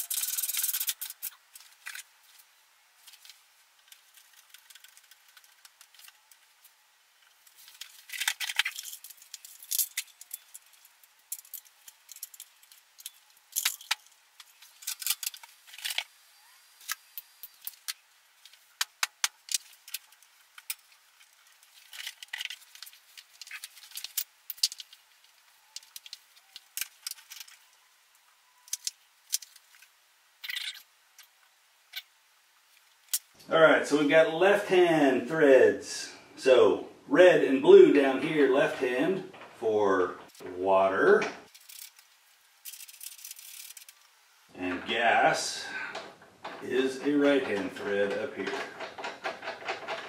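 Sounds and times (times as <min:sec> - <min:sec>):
small metal parts clinking: 0:00.0 - 0:02.1, 0:07.5 - 0:16.1, 0:19.4 - 0:27.7, 0:41.5 - 0:44.0.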